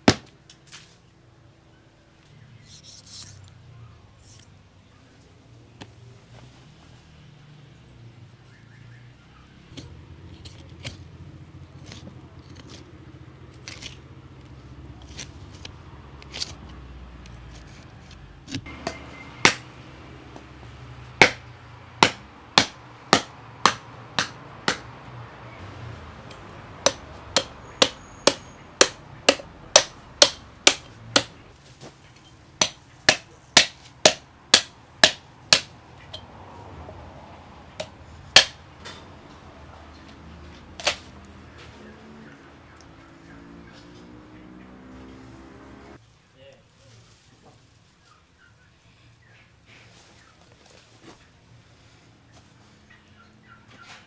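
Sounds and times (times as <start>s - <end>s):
cleaver chopping on wooden stump: 0.0s - 0.3s, 18.5s - 19.7s, 21.2s - 24.9s, 26.8s - 31.4s, 32.6s - 35.8s, 37.8s - 38.6s.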